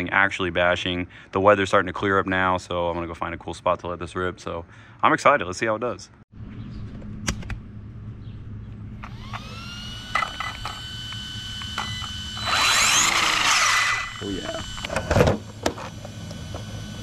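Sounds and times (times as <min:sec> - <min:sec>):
electric motor whine: 0:08.8 - 0:17.0.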